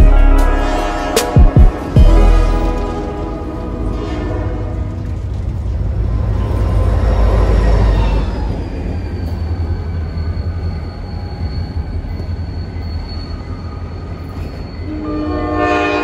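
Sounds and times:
train rumbling on tracks: 0.0s - 16.0s
high-pitched wheel squeal: 6.2s - 15.6s.

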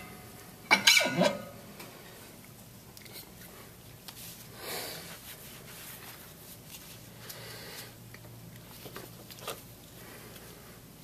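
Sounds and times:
low steady hum: 0.0s - 11.0s
gloved hands rubbing: 4.1s - 7.9s.

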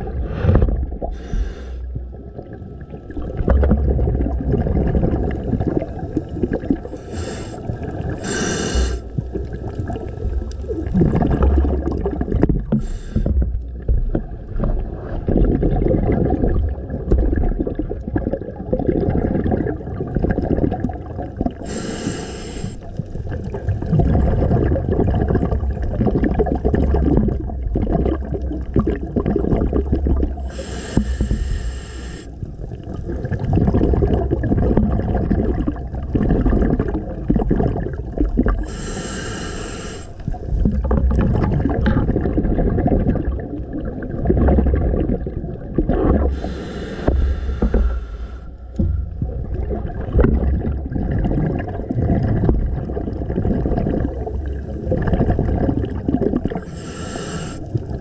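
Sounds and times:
underwater bubbling of exhaled air: 0.0s - 58.0s
regulator inhale hisses: 0.3s - 1.9s, 6.9s - 9.1s, 12.8s - 13.4s, 21.6s - 22.9s, 30.5s - 32.4s, 38.6s - 40.3s, 46.3s - 48.6s, 56.7s - 57.8s.

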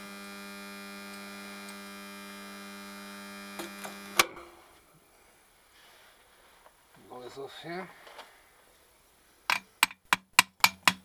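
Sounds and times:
welder mains hum: 0.0s - 4.9s.

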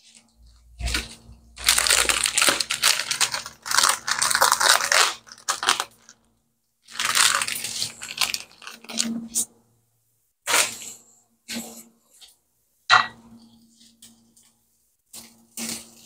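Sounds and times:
plastic packaging crinkling: 0.1s - 6.2s, 6.9s - 9.2s.

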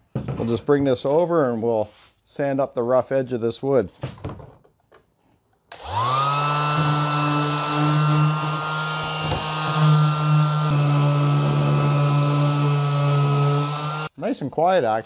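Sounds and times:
orbit sander humming: 5.7s - 14.1s.

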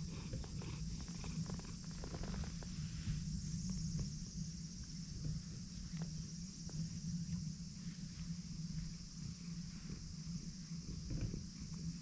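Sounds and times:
cat purring: 0.0s - 2.9s.

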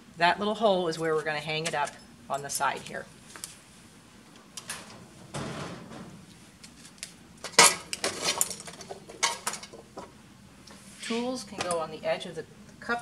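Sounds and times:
wooden sticks clattering into metal tray: 7.4s - 9.8s.

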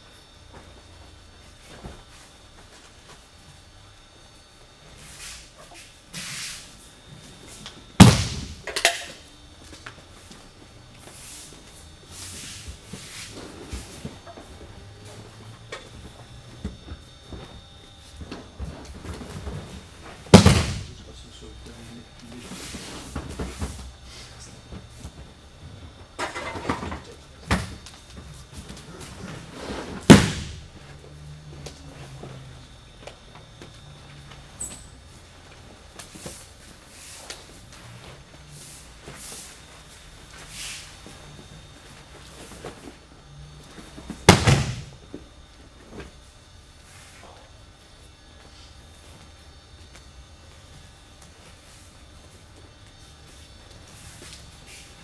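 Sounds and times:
feet on mat: 7.2s - 8.7s
body thud on mats: 8.0s - 8.6s, 18.3s - 21.0s, 29.8s - 30.8s, 44.1s - 45.1s
sharp slap on mats: 8.0s - 8.6s, 20.3s - 20.9s, 30.0s - 30.7s, 44.2s - 45.0s.

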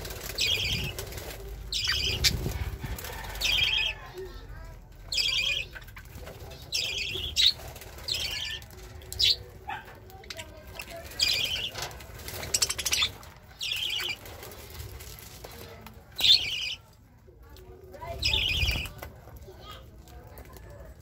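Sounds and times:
wings fluttering: 0.0s - 4.0s, 5.0s - 16.8s, 18.1s - 19.4s
budgerigars chirping: 1.7s - 2.5s.

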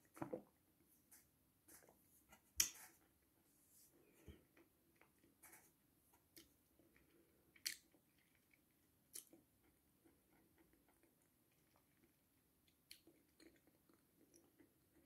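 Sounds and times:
chewing dry pasta: 4.3s - 15.0s.

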